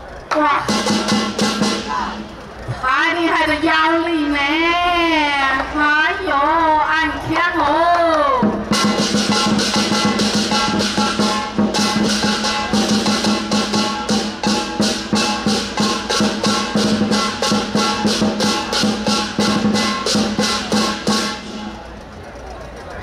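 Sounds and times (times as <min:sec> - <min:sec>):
drum beat: 0:00.7 - 0:02.4, 0:08.4 - 0:21.9
gong ringing: 0:08.7 - 0:22.0
cymbal clashes: 0:08.8 - 0:22.0.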